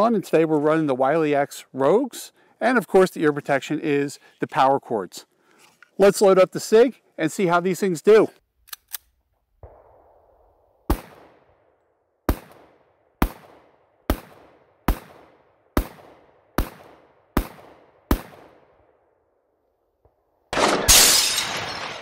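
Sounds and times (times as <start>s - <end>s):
pistol shots with echo: 10.9s - 11.5s, 12.3s - 18.8s.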